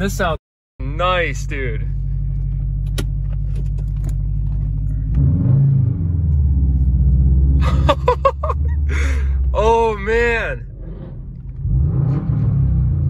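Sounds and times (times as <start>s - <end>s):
car exhaust droning from inside cabin: 0.8s - 8.8s.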